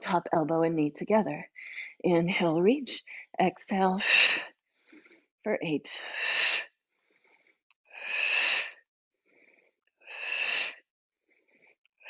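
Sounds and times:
soft inhales: 0:04.4 - 0:05.3, 0:06.2 - 0:11.8.

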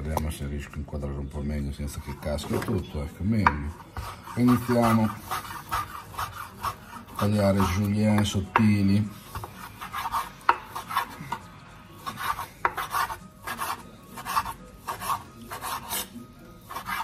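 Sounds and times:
knife slicing on cutting board: 0:04.0 - 0:07.8, 0:12.0 - 0:17.0.

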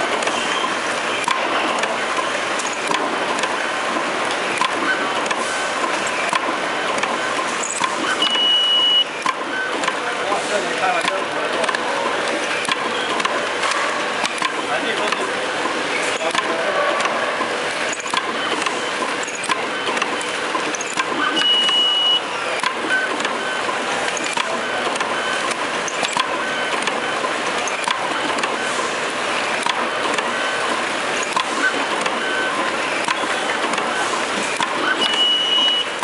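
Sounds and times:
machine hiss and clatter: 0:00.0 - 0:08.2, 0:09.2 - 0:36.0
high beep: 0:07.6 - 0:09.7, 0:21.2 - 0:23.6, 0:34.8 - 0:36.0
mechanical clicks: 0:09.2 - 0:10.0, 0:11.0 - 0:13.6, 0:14.2 - 0:21.9, 0:22.6 - 0:28.6, 0:29.6 - 0:35.7.

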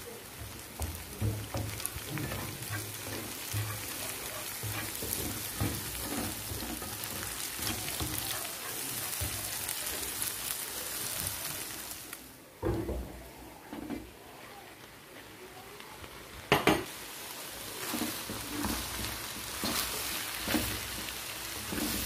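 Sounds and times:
egg sizzling in oil: 0:00.0 - 0:12.4, 0:15.9 - 0:22.0
spatula scraping frying pan: 0:00.4 - 0:10.3, 0:17.8 - 0:22.0.

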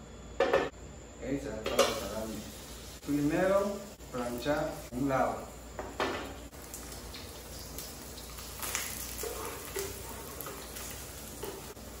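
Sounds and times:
meat sizzling in a pan: 0:01.8 - 0:05.6, 0:06.2 - 0:12.0.

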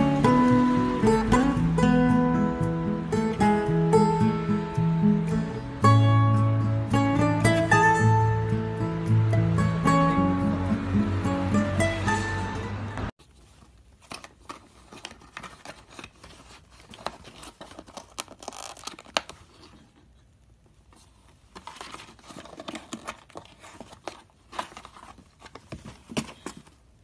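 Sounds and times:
background music: 0:00.0 - 0:13.1
cat scratching cardboard box: 0:21.0 - 0:26.8.

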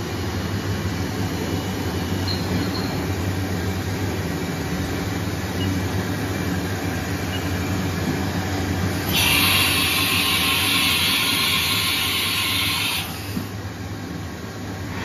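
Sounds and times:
machining center humming: 0:00.0 - 0:15.0.

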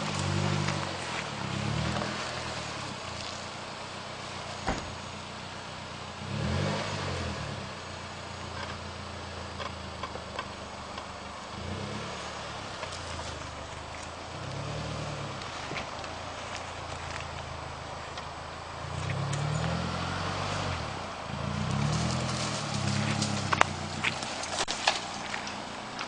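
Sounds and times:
off-road vehicle engine running: 0:00.0 - 0:26.0.

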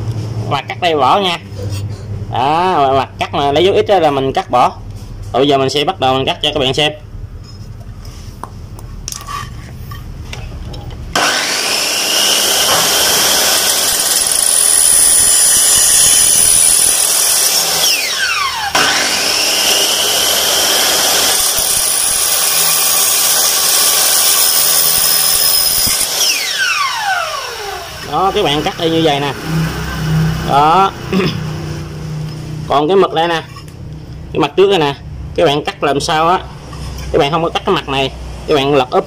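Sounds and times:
miter saw whining: 0:11.2 - 0:30.9.

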